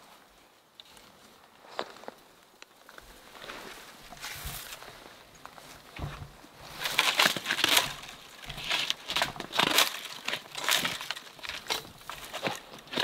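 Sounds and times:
branches brushing against clothing: 0.0s - 13.0s
footsteps through brush: 0.0s - 13.0s.

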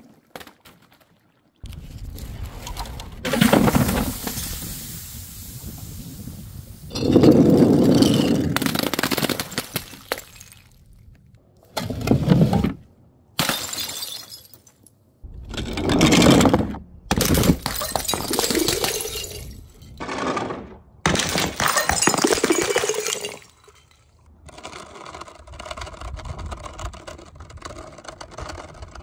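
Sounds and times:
glass bottles smashing: 13.4s - 14.9s, 17.2s - 20.0s, 21.1s - 24.2s.

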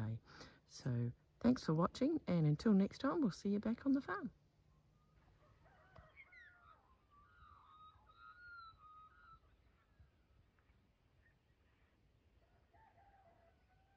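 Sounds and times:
whistled bird calls: 5.9s - 10.4s.

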